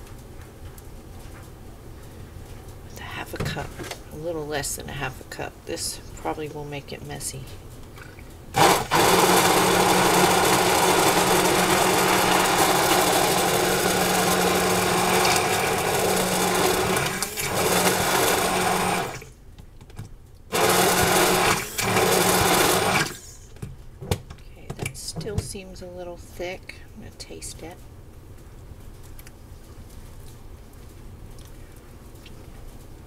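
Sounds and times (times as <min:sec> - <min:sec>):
immersion blender running: 0:08.6 - 0:19.3, 0:20.5 - 0:23.4.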